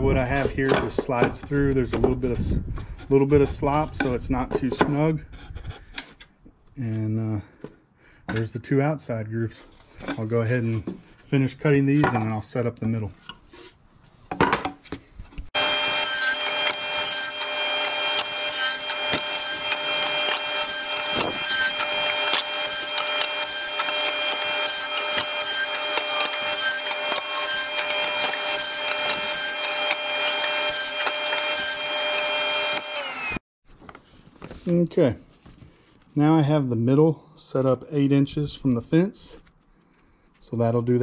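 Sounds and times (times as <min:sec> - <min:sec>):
table saw running: 0:15.6 - 0:33.4.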